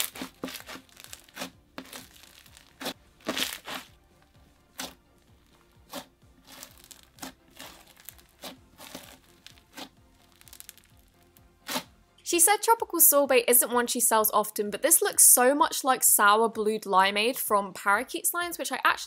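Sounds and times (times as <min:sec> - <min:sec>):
slime crunching when squeezed: 0:00.0 - 0:03.9, 0:04.7 - 0:11.9.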